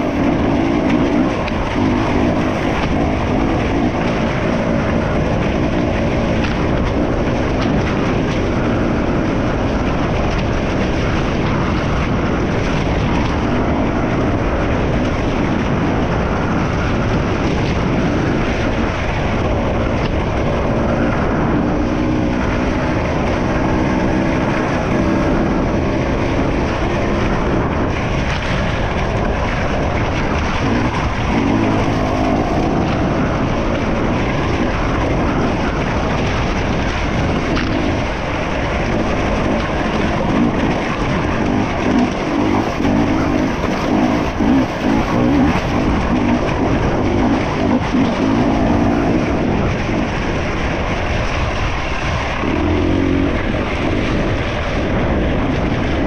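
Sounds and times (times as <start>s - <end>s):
motorcycle engine revving: 0.0s - 56.0s
wind noise: 0.0s - 56.0s
mud splashing: 16.7s - 56.0s.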